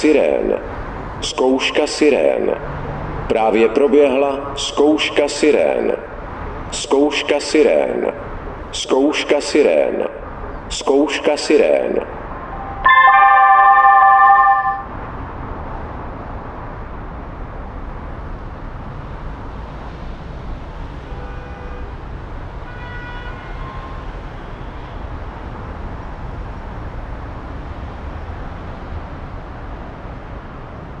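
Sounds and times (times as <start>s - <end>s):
electronic siren chord: 12.6s - 15.0s.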